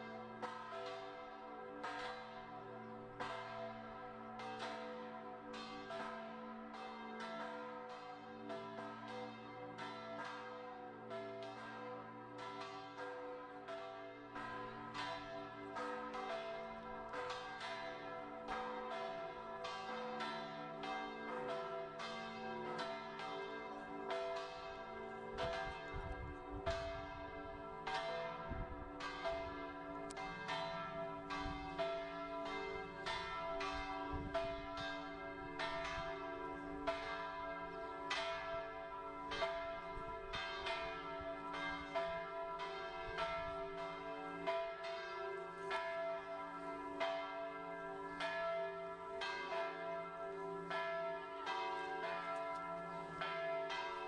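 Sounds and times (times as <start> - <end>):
church bells ringing: 0.0 - 54.0.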